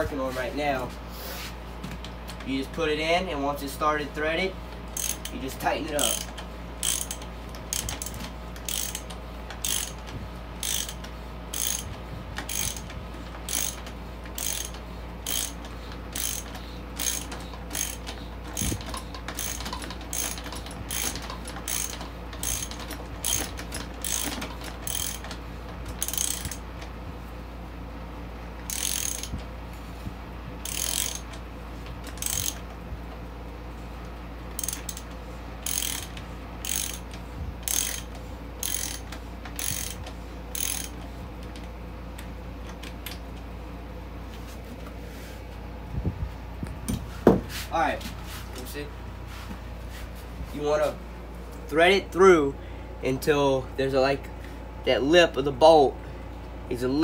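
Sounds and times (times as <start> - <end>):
ratchet wrench clicking: 4.9 - 26.6, 28.7 - 29.4, 30.6 - 31.4, 32.0 - 32.6, 34.6 - 41.0.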